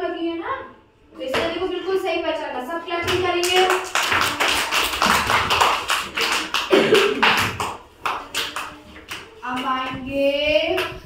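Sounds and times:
children clapping: 3.4 - 9.7.

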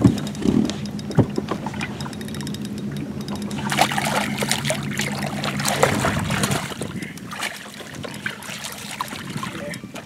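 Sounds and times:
steady low hum: 0.0 - 10.0
fish splashing at water surface: 3.5 - 10.0.

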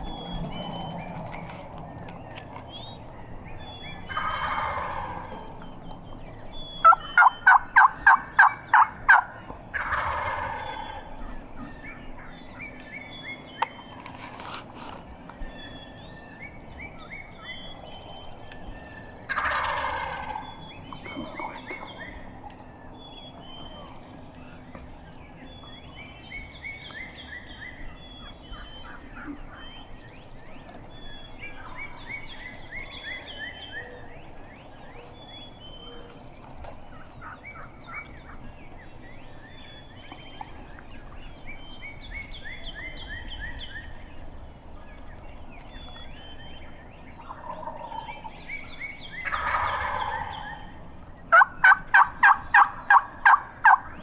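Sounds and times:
small birds chirping: 0.0 - 54.0
turkey yelps: 4.1 - 5.2, 6.8 - 11.4, 19.3 - 20.4, 47.2 - 48.1, 49.2 - 50.7, 51.3 - 53.9
turkey gobbling: 4.1 - 5.6, 6.8 - 11.7, 19.3 - 22.1, 47.2 - 48.3, 49.2 - 53.9.

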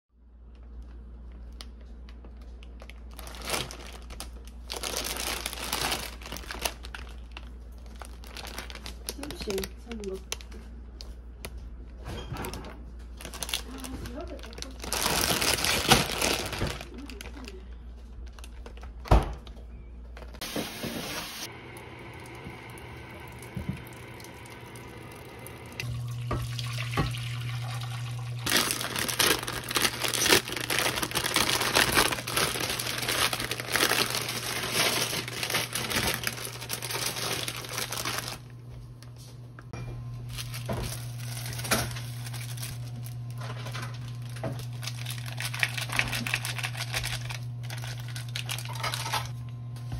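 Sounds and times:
plastic pouch crinkling and tearing: 0.6 - 10.6, 13.1 - 19.0, 28.4 - 38.5, 40.3 - 49.4.

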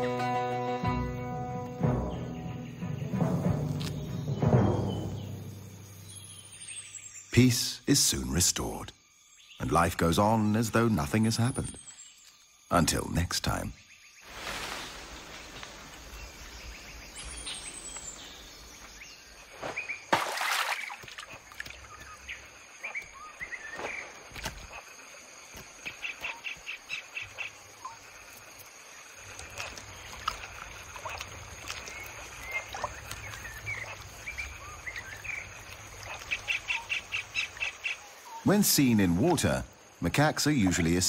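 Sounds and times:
birds chirping and calling: 29.5 - 39.4.

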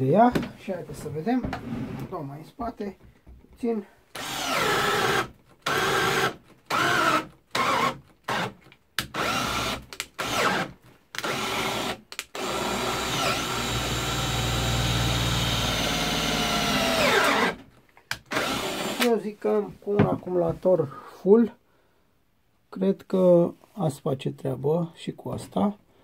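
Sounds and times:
cordless drill boring into wood: 4.1 - 17.6, 18.2 - 19.1.

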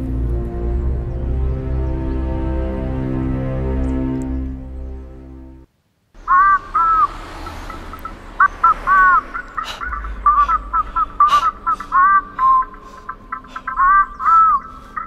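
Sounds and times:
high whistle-like melody: 10.7 - 12.8.

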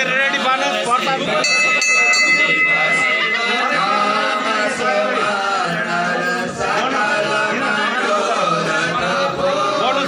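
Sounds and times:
man singing a devotional chant: 2.7 - 10.0.

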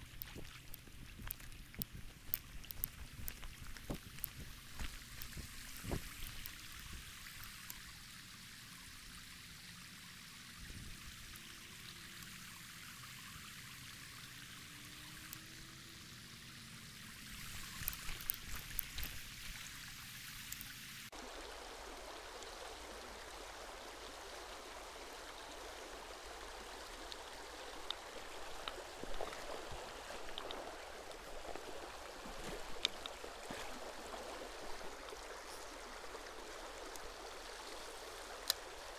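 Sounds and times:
sharp clicks: 0.0 - 6.8.

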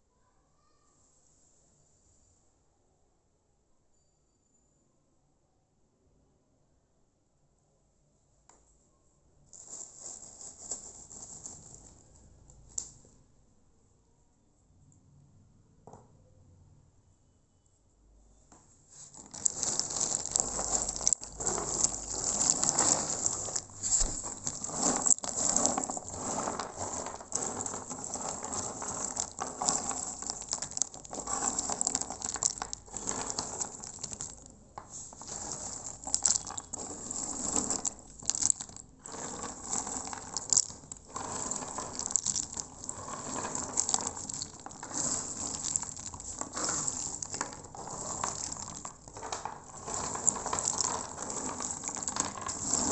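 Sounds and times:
nuts clattering together: 19.1 - 52.9.

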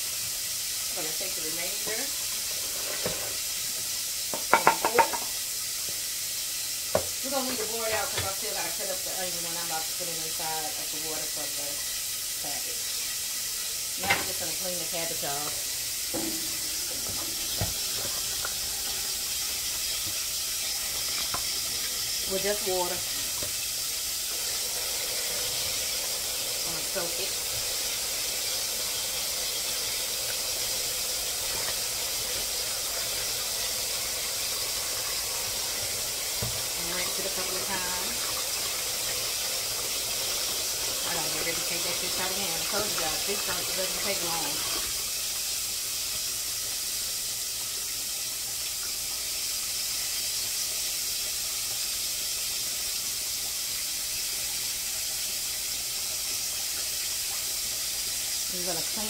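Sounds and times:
faucet running into bowl: 0.0 - 59.0
hands rinsing leaves: 14.3 - 45.0.

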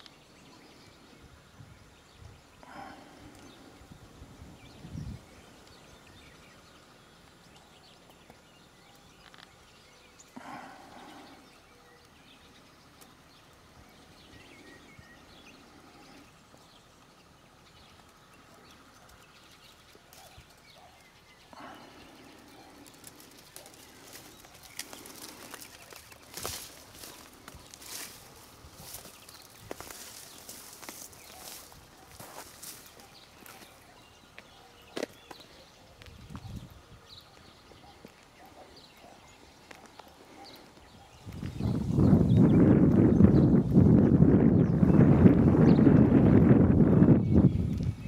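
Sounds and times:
small ticks: 17.9 - 31.6
footsteps on dirt path: 21.6 - 38.6.

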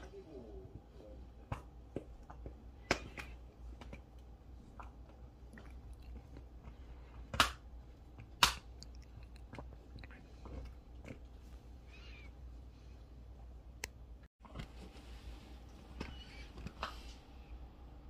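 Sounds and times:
sharp bone cracks: 8.4 - 9.1.

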